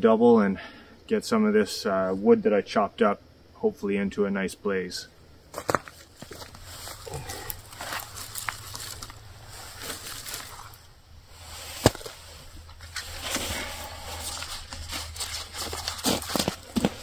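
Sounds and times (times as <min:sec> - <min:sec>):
campfire crackling: 0:05.4 - 0:17.0
wood and kindling rustling: 0:05.5 - 0:17.0.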